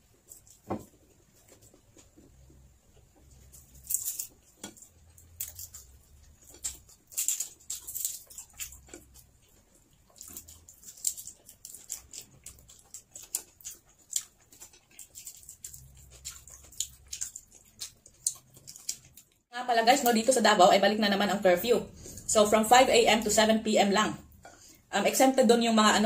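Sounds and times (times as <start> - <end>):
chewing and lip smacks: 3.2 - 19.5.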